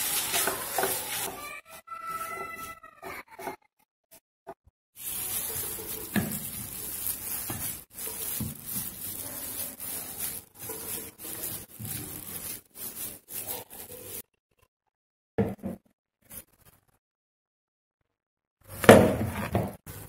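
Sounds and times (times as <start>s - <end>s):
spatula scraping frying pan: 0.0s - 1.5s, 5.0s - 14.2s.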